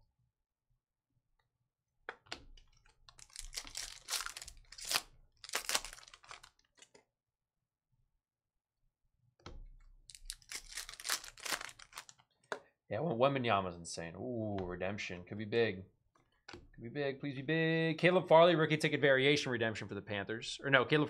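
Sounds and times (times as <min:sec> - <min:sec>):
foil wrapper tearing and crinkling: 0:03.1 - 0:06.8, 0:10.1 - 0:12.1.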